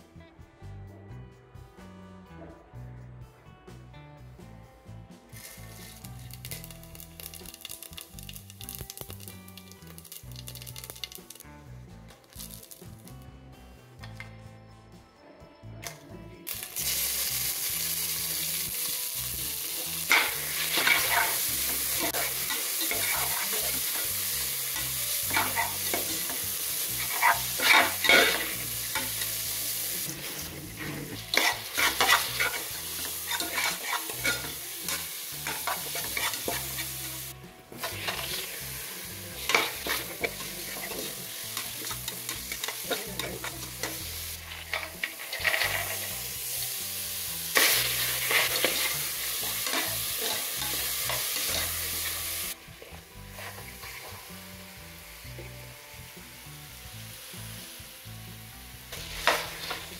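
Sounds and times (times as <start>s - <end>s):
onions sizzling in oil: 5.3s - 11.5s, 12.2s - 13.2s, 16.5s - 59.9s
metal spatula scraping a pot: 20.1s - 24.1s, 24.7s - 29.4s, 30.0s - 37.0s, 37.7s - 38.7s, 39.3s - 46.3s, 47.6s - 52.2s, 53.3s - 54.1s.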